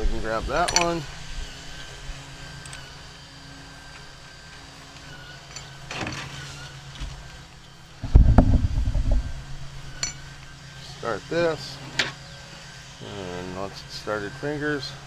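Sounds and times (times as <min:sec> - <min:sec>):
motor humming: 0:01.1 - 0:11.4
low rumble: 0:08.0 - 0:10.4.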